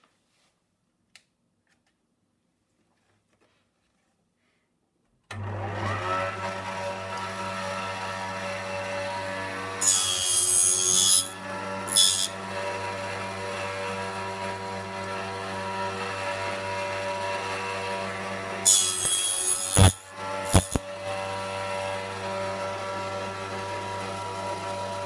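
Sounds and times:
table saw cutting wood: 5.3s - 25.0s.

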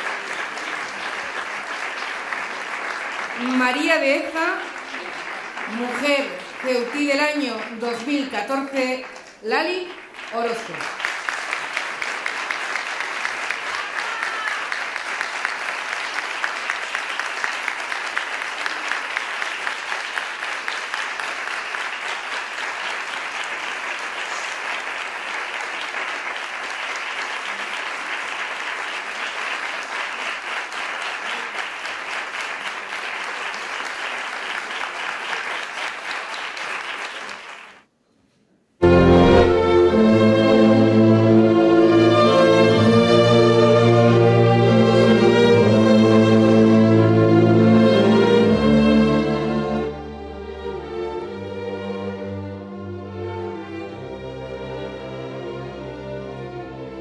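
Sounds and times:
audience applauding: 0.0s - 37.9s
loud music: 38.8s - 57.0s.

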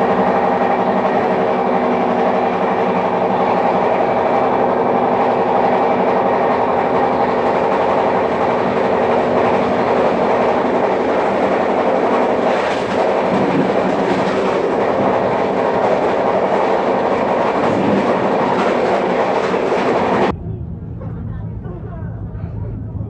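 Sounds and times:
train wheels rumbling on rails: 0.0s - 23.0s
wheels clattering over track: 4.4s - 20.3s.

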